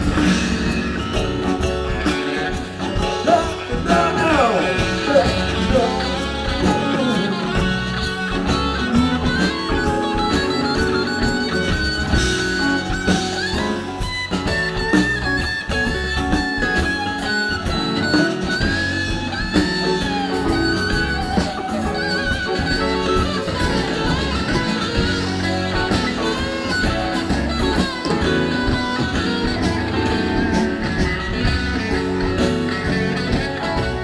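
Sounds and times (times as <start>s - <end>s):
live band playing: 0.0s - 34.0s.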